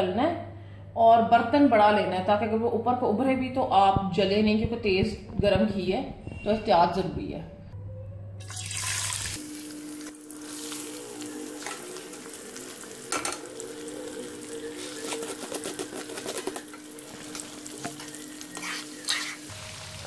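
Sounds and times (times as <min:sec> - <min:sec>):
lentils deep-frying in oil: 0:08.4 - 0:20.0
faint steady hum: 0:09.3 - 0:19.8.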